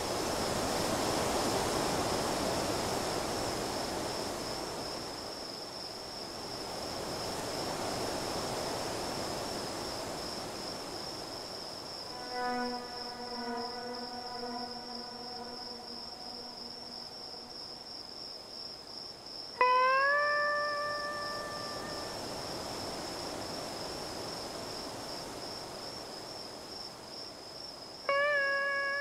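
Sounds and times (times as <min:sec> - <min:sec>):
high-pitched cricket-like chirring: 0:00.1 - 0:29.0
loud note sliding up in pitch: 0:12.1 - 0:17.6
long pitched note: 0:12.1 - 0:17.9, 0:19.6 - 0:22.2.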